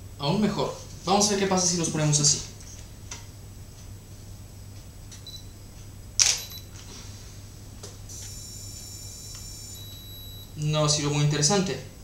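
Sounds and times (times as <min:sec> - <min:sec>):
camera shutter clicking: 0:06.2 - 0:06.5.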